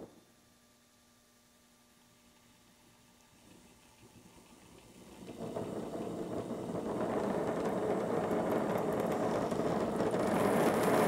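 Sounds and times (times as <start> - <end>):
torch flame hissing: 4.5 - 11.0.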